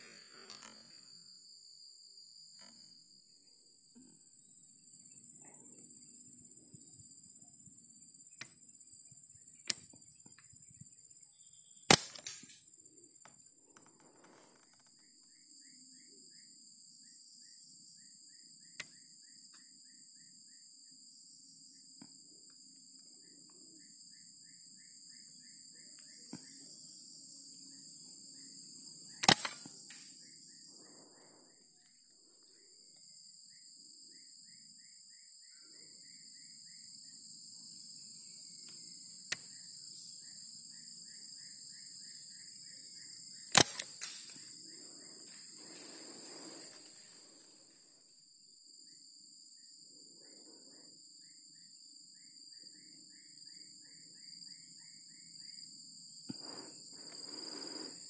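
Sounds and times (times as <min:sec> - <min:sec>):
insects droning: 0:00.0 - 0:58.0
rifle shots: 0:29.2 - 0:29.7, 0:43.6 - 0:44.2
faint chirping: 0:44.2 - 0:58.0.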